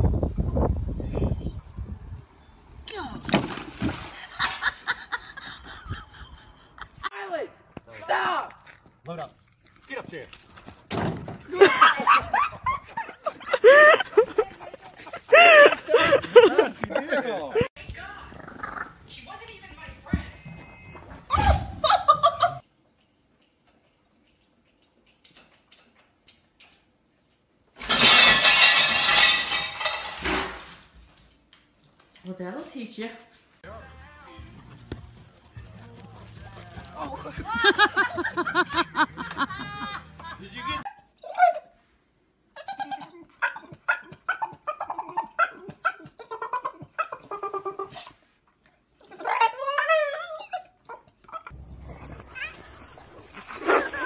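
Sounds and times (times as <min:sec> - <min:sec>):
dishes crashing and shattering: 0:27.8 - 0:30.8.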